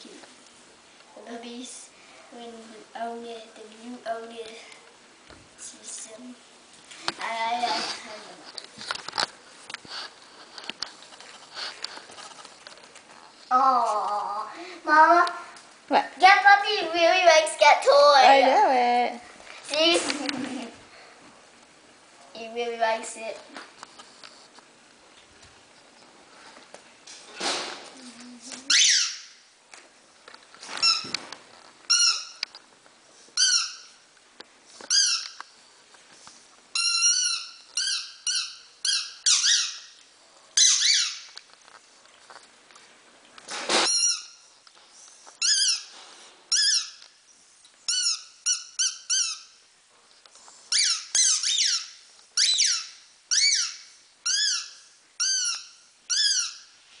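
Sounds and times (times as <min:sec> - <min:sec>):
rubber squeaky toy squeaking: 0:28.7 - 0:29.3, 0:31.9 - 0:32.4, 0:33.4 - 0:33.9, 0:34.9 - 0:35.4, 0:36.7 - 0:39.9, 0:40.6 - 0:41.3, 0:43.8 - 0:44.4, 0:45.4 - 0:45.9, 0:46.5 - 0:47.0, 0:47.9 - 0:49.6, 0:50.7 - 0:56.7.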